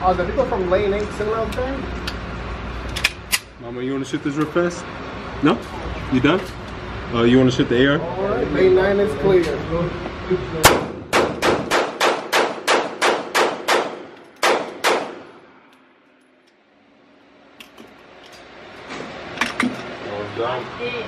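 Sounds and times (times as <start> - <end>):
pistol shots echoing indoors: 10.6 - 15.4.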